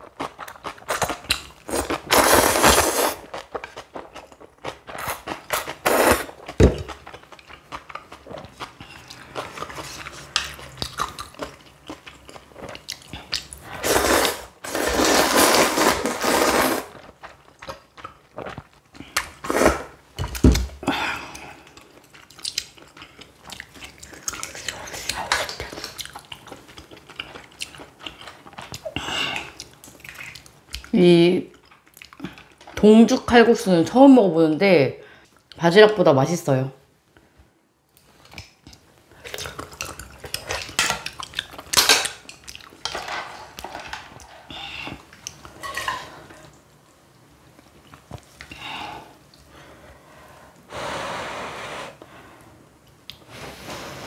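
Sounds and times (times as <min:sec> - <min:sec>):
chewing and crunching: 0:00.0 - 0:02.1, 0:03.2 - 0:13.8, 0:16.9 - 0:19.4, 0:21.4 - 0:32.8, 0:38.0 - 0:46.7
slurping noodles: 0:01.7 - 0:03.3, 0:05.0 - 0:06.4, 0:13.7 - 0:17.1.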